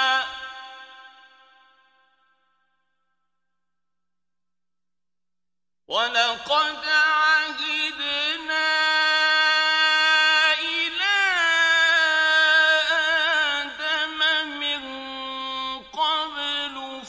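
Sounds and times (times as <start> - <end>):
man chanting recitation: 0.0 - 1.1, 5.9 - 17.0.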